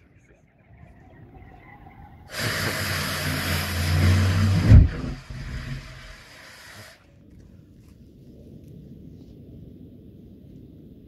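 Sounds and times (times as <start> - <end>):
pulse jet engine buzzing: 2.2 - 7.0
bang: 2.3 - 6.3
hiss of air: 2.3 - 7.1.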